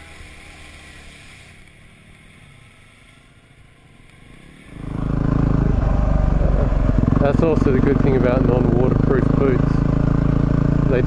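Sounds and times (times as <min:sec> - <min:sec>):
rushing noise: 0:00.0 - 0:10.9
motorcycle engine: 0:00.0 - 0:11.0.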